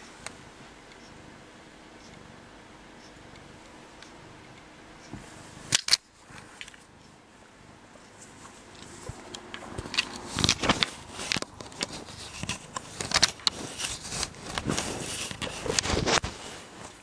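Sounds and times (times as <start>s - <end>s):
cat scratching at camera: 10.2s - 16.4s.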